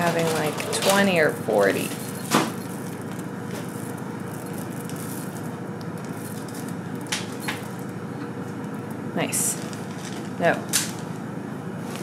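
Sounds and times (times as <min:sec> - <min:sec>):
oats trickling into a bowl: 0:00.9 - 0:08.0, 0:08.6 - 0:11.1.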